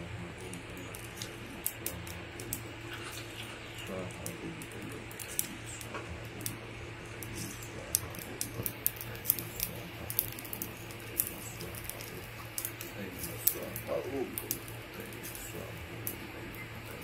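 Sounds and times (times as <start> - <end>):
sharp clicks and crackles: 0.0 - 17.0
steady low hum: 0.0 - 17.0.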